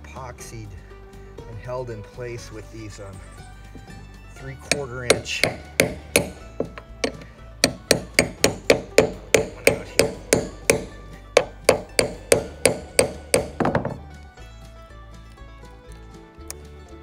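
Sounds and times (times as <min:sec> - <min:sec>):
hammer striking metal: 0:04.6 - 0:14.0.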